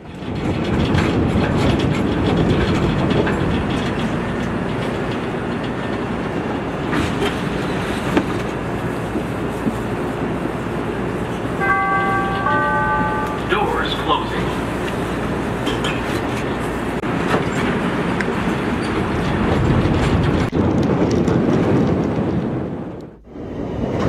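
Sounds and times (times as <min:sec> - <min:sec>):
train rumbling with wheel clatter: 0:00.0 - 0:24.0
two-note tone: 0:11.6 - 0:14.4.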